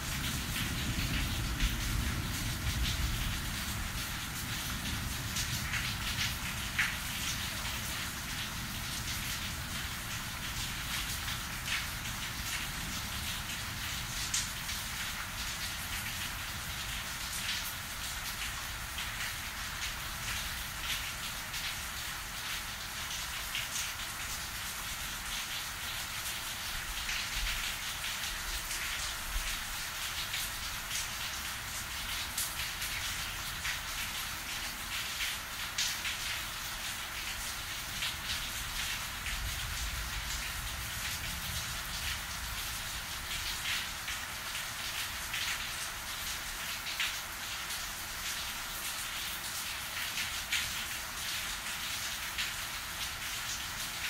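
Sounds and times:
low thunder rumble: 0:00.0 - 0:05.5
heavy rain falling: 0:00.0 - 0:54.0
raindrops splattering: 0:00.0 - 0:54.0.

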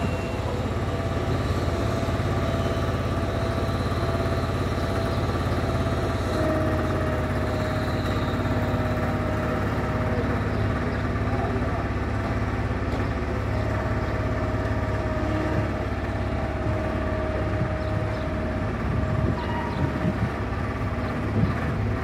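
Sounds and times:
engine running steadily: 0:00.0 - 0:22.0.

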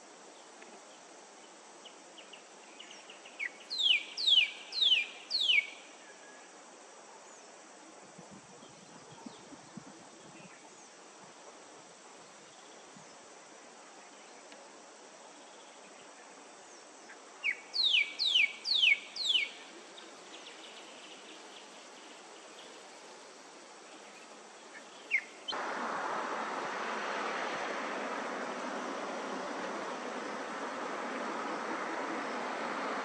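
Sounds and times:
faint outdoor background: 0:00.0 - 0:33.0
bird whistling calls: 0:03.4 - 0:05.8, 0:17.4 - 0:19.6.

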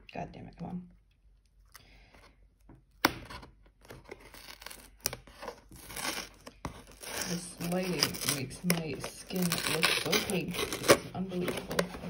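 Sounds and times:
fingers scratching cardboard box: 0:04.0 - 0:12.0.

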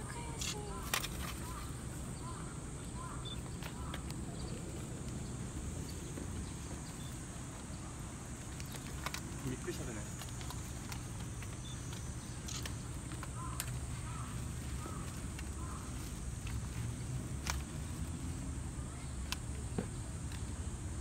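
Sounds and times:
light clicks: 0:10.1 - 0:14.2.

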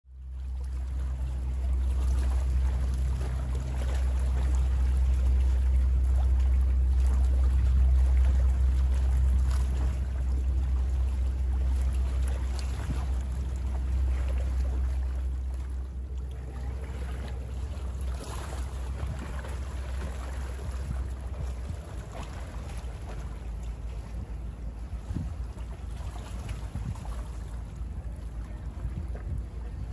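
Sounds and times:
boat engine drone: 0:00.1 - 0:29.9
waves lapping and splashing: 0:00.1 - 0:29.9.

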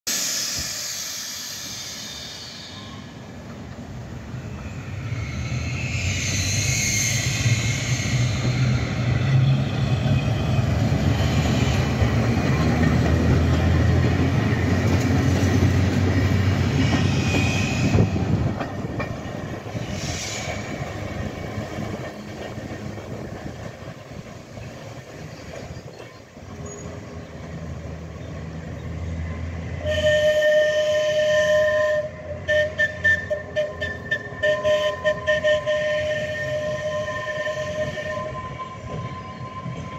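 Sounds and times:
tram whistle: 0:00.1 - 0:03.4, 0:04.3 - 0:22.9, 0:29.4 - 0:39.9
tram wheels rumbling on rail: 0:00.1 - 0:39.9
high wheel squeals: 0:00.2 - 0:03.3, 0:04.3 - 0:12.0, 0:16.6 - 0:18.4, 0:32.4 - 0:39.9.

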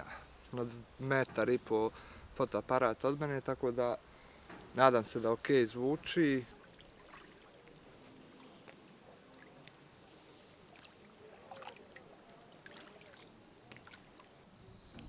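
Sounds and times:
small waves lapping: 0:06.0 - 0:14.6
soft splashes and ticks: 0:06.4 - 0:10.0, 0:10.6 - 0:14.4.

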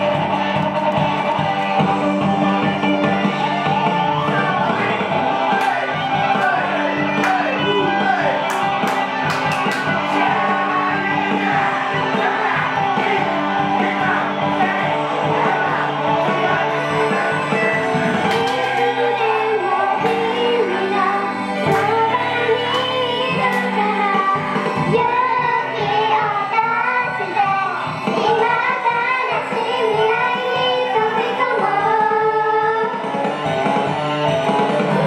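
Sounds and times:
pop instrumental music: 0:00.0 - 0:35.0
girls singing: 0:09.6 - 0:32.9.

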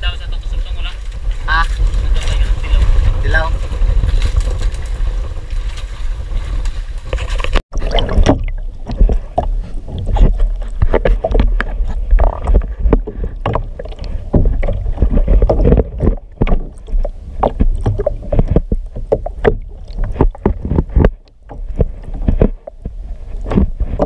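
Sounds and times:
steady low rumble: 0:00.0 - 0:24.0
water sloshing: 0:01.0 - 0:24.0
fish knocking in plastic tub: 0:07.9 - 0:22.9.

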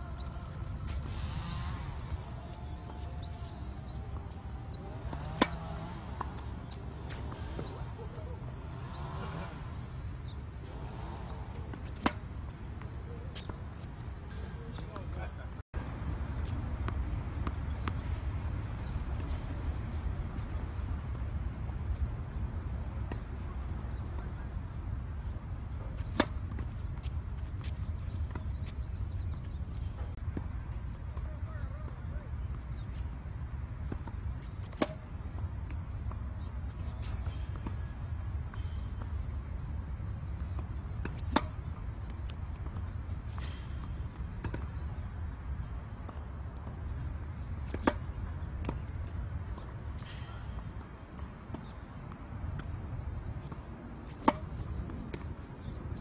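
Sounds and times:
steady low rumble: 0:00.0 - 0:14.3
racket striking ball: 0:02.0 - 0:08.0, 0:10.8 - 0:14.8, 0:25.9 - 0:30.1, 0:34.4 - 0:35.0, 0:40.4 - 0:44.8, 0:46.1 - 0:51.8, 0:53.4 - 0:55.8.

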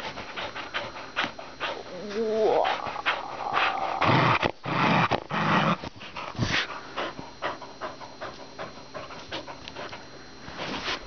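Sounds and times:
dog panting: 0:00.0 - 0:04.0, 0:05.9 - 0:10.2
dog play-growling: 0:00.0 - 0:10.0.

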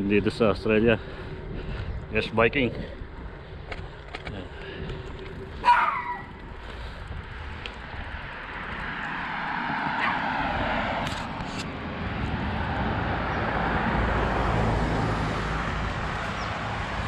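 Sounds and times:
low rumble: 0:00.0 - 0:11.0
car passing: 0:00.0 - 0:17.0.

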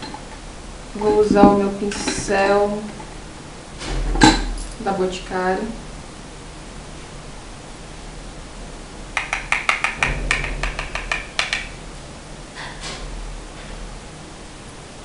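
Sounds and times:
brush tapping powder compact: 0:09.2 - 0:11.7.

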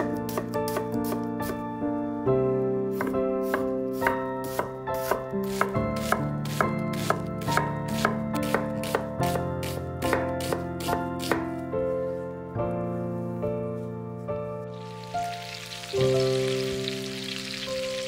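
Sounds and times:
knife chopping on cutting board: 0:00.0 - 0:01.6, 0:02.9 - 0:11.6
soft background music: 0:00.0 - 0:18.0.

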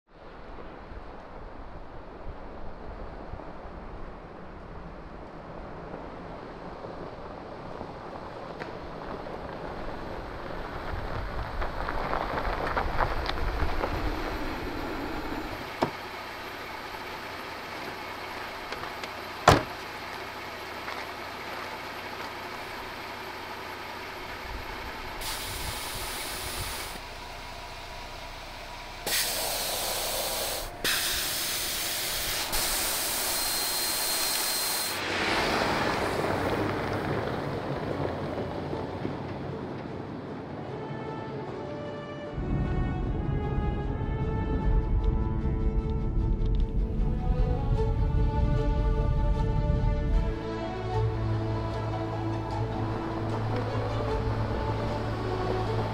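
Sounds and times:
vehicle pulling away on gravel: 0:02.8 - 0:40.7, 0:46.2 - 0:55.9
tyres on gravel: 0:06.3 - 0:40.4
air hissing from tyre valve: 0:25.1 - 0:27.1, 0:28.8 - 0:35.1.

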